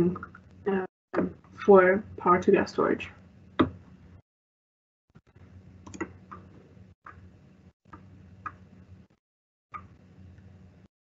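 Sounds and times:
low hum: 5.2s - 9.2s.

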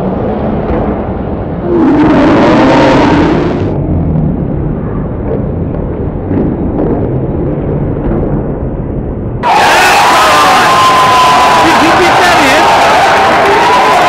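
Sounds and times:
crowd cheering: 9.4s - 14.0s.

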